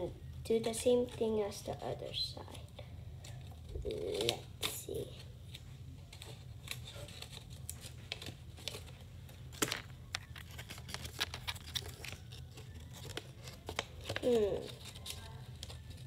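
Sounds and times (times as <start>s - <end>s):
paper rustling and crinkling: 3.2s - 16.0s.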